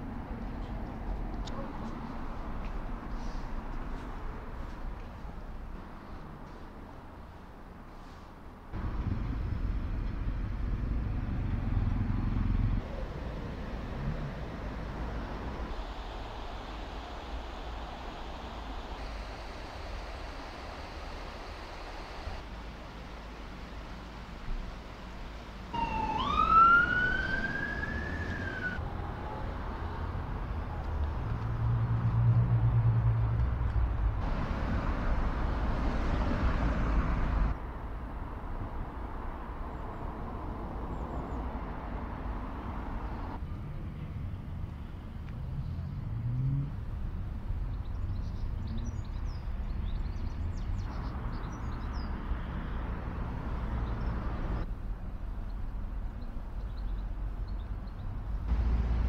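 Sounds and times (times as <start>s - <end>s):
traffic noise: 0.0s - 59.0s
rising wail: 25.8s - 29.4s.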